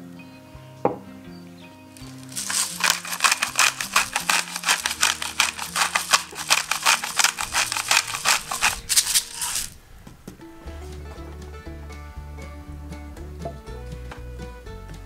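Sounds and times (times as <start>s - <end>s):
pepper grinder clicking: 2.0s - 9.8s.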